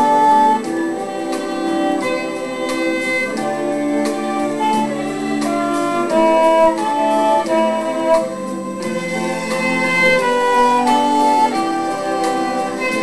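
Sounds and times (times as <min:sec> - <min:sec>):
lower accompaniment with steady beat: 0:00.0 - 0:13.0
violin melody: 0:00.0 - 0:13.0.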